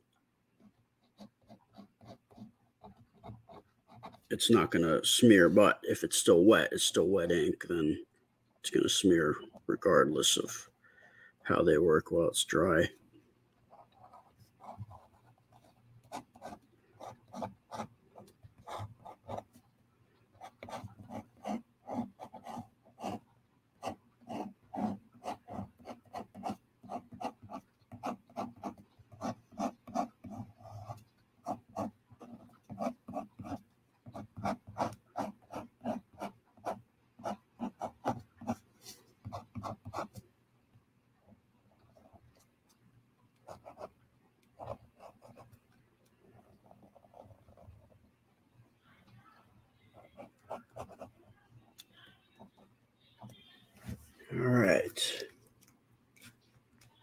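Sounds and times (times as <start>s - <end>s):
pen scratching on paper: 0.6s - 4.7s, 13.7s - 19.6s, 20.3s - 40.2s, 43.4s - 45.6s, 46.4s - 48.0s, 50.0s - 51.8s.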